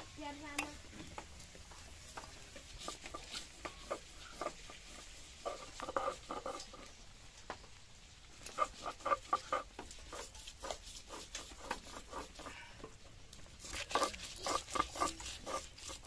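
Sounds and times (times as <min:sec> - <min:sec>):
stone grinding on stone slab: 0:02.7 - 0:06.9, 0:08.5 - 0:12.5, 0:13.6 - 0:16.0.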